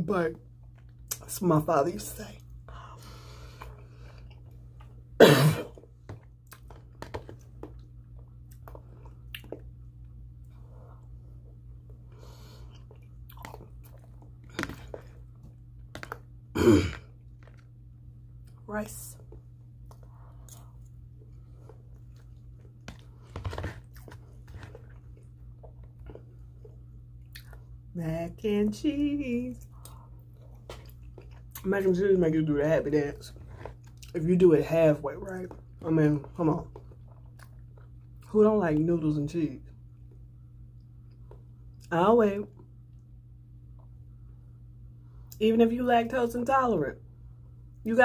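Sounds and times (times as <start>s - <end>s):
low steady hum: 0.0s - 48.0s
woman chewing food: 2.8s - 18.6s, 19.2s - 27.9s, 29.6s - 31.6s, 33.4s - 34.2s, 36.7s - 38.3s
woman coughing: 5.2s - 5.8s, 16.6s - 17.1s.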